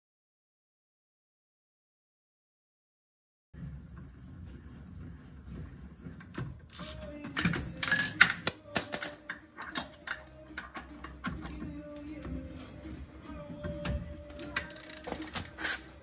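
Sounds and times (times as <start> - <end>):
screwdriver scraping metal wheel cover: 14.3 - 16.0.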